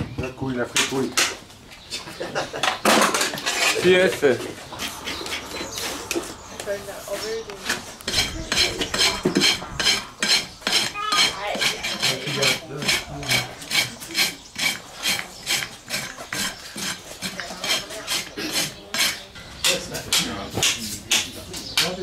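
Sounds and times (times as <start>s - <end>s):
rasp scraping hoof: 3.0s - 19.3s.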